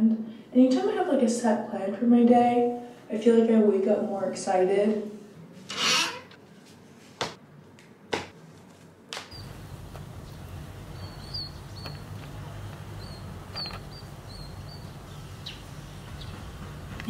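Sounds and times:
small bird chirping: 9.3s - 16.6s
low outdoor rumble: 9.4s - 17.0s.

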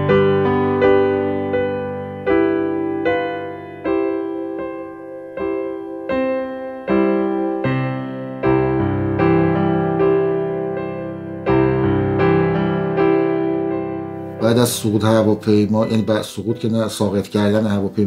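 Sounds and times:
slow piano melody: 0.0s - 18.0s.

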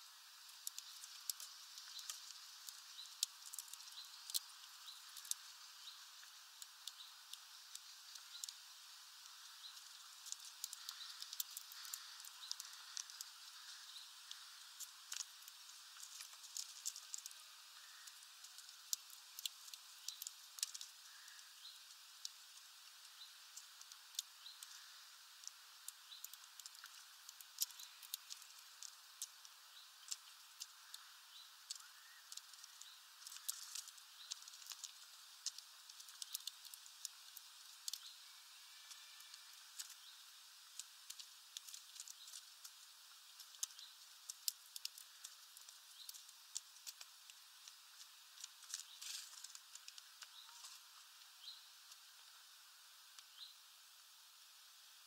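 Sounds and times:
birds cracking seeds: 0.3s - 52.4s
faint high bird chirps: 29.7s - 34.4s, 50.2s - 50.8s.

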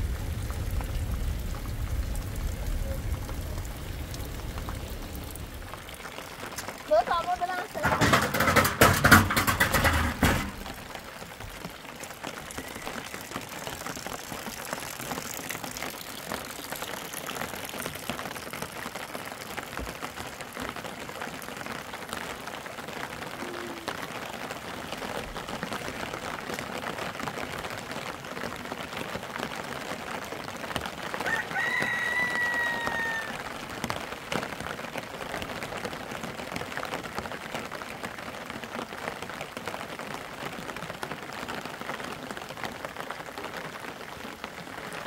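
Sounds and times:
rain hissing: 0.0s - 45.0s
rattling knocks: 7.8s - 10.8s
rooster crowing: 31.2s - 33.5s.

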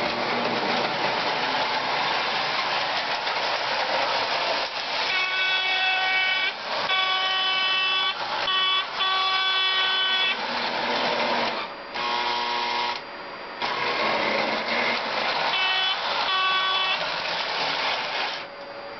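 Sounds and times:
toy train rolling on metal track: 0.0s - 11.6s, 13.6s - 18.5s
toy train horn: 5.0s - 10.5s, 15.4s - 18.0s.

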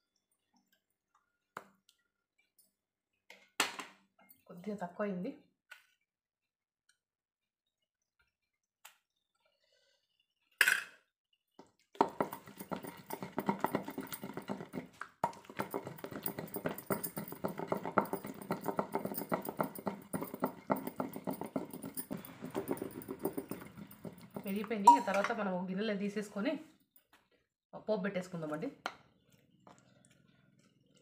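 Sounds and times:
pestle pounding in stone mortar: 12.0s - 25.3s.

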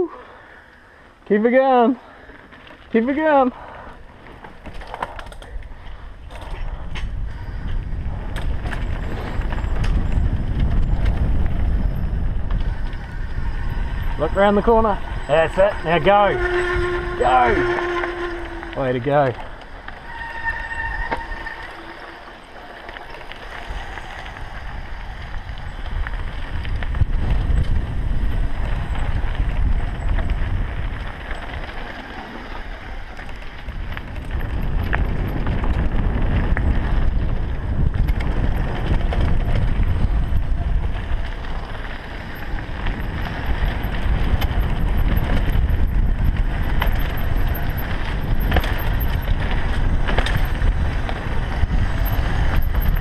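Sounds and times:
bike tyres rolling on dirt: 0.0s - 53.0s
wind buffeting microphone: 3.5s - 22.0s, 23.1s - 53.0s
bike knocks and rattles: 33.2s - 53.0s.

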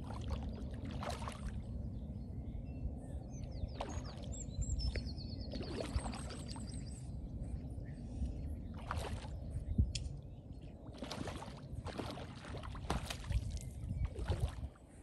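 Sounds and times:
wind rumble on microphone: 0.0s - 15.0s
fish splashing in water: 11.0s - 13.5s.

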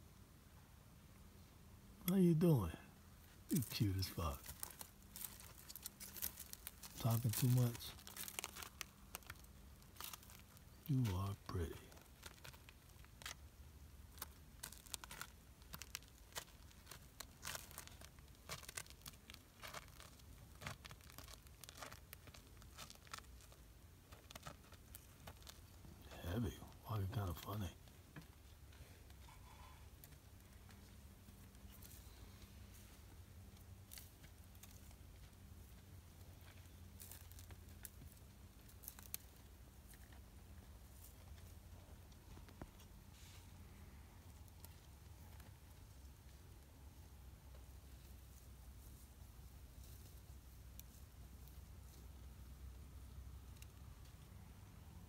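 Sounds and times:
low steady hum: 0.0s - 55.0s
faint crackles and clicks: 3.3s - 55.0s
cow stepping through dry grass: 3.6s - 11.0s.

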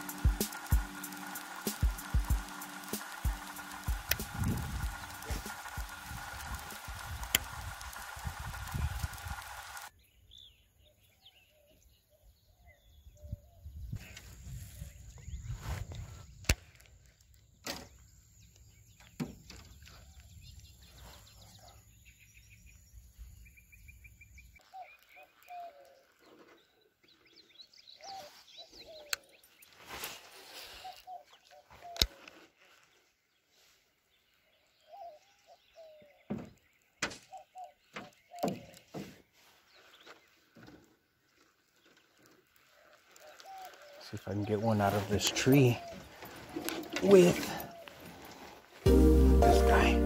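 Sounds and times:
sharp clicks: 0.0s - 9.9s
birds chirping and trilling: 0.0s - 48.8s
wind rumble on microphone: 13.0s - 16.4s.

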